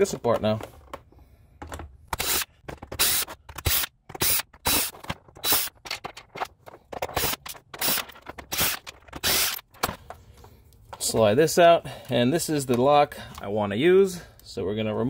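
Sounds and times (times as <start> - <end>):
cordless drill short bursts: 2.2 - 5.7, 7.9 - 9.6.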